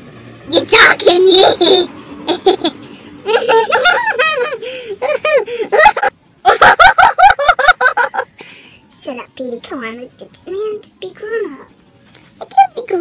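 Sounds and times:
high-pitched laughter: 1.4 - 8.3.

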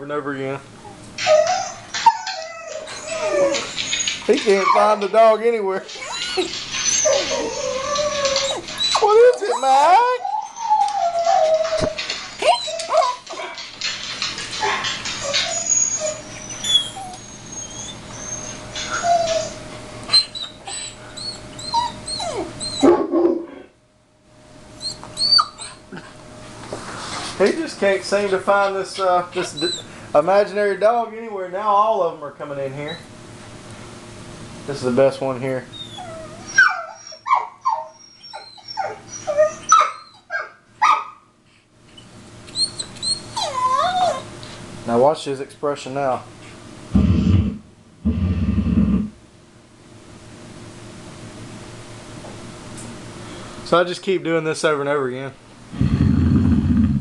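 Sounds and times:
dog whimpering and yelping: 0.8 - 5.1, 5.9 - 13.6, 14.5 - 23.5, 24.8 - 25.8, 29.0 - 29.9, 35.7 - 41.1, 42.5 - 44.4.

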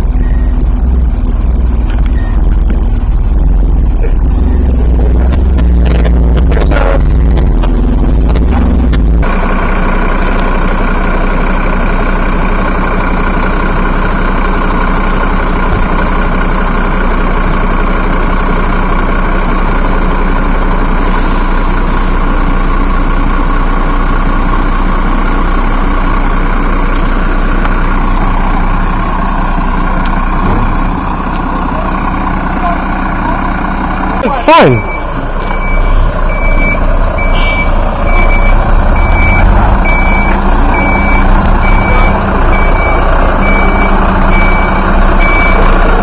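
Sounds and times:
low rumble with knocks: 0.0 - 9.4, 15.6 - 16.1, 30.0 - 31.5
truck engine idling: 0.0 - 46.0.

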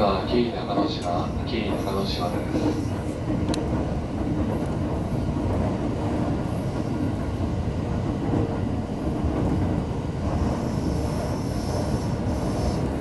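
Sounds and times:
train wheels rumbling on rails: 0.0 - 13.0.

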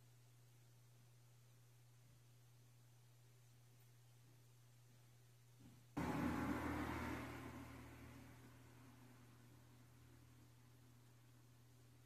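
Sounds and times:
low electrical hum: 0.0 - 12.0
car engine passing: 6.0 - 10.6.

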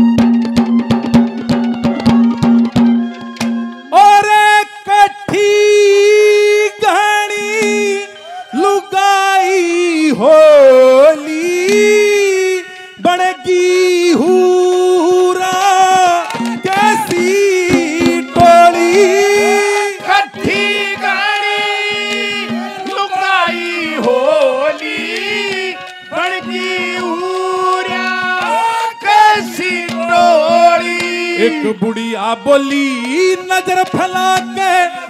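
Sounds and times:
hand drum accompaniment: 0.0 - 3.8, 15.2 - 32.0
ornamented folk melody: 0.0 - 35.0.

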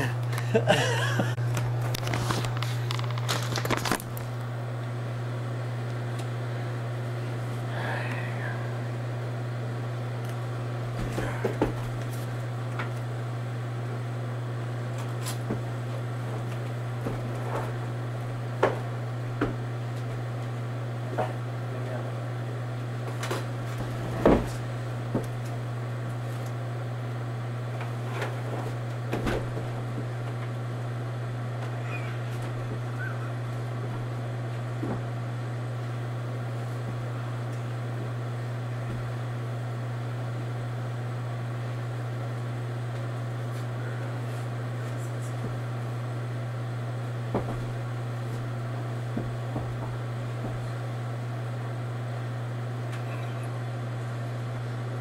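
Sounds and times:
low hum: 27.8 - 42.5.

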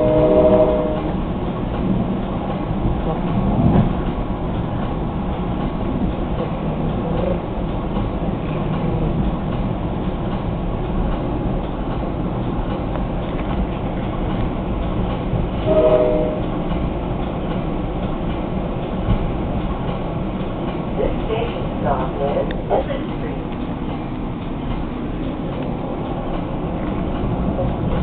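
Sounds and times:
train horn blast: 0.0 - 1.2, 15.6 - 16.6
train running rumble: 0.0 - 28.0.

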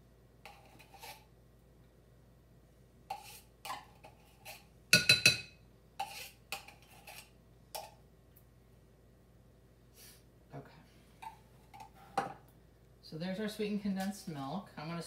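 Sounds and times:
knife scraping metal can: 0.4 - 1.3, 3.1 - 4.7, 6.0 - 7.3.

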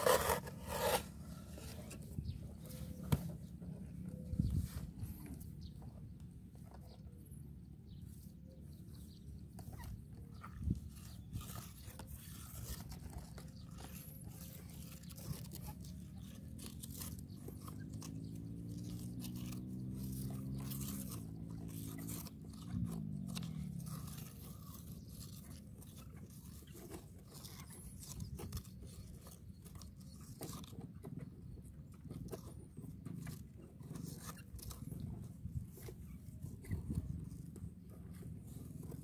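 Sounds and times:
stick scraping into damp soil: 0.0 - 3.4.

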